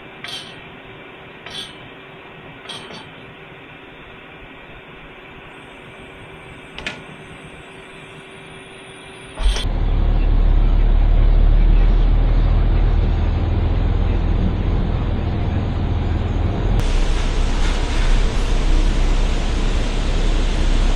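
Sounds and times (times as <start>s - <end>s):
steady hum: 0.0s - 20.9s
diesel truck engine rumbling: 9.4s - 20.9s.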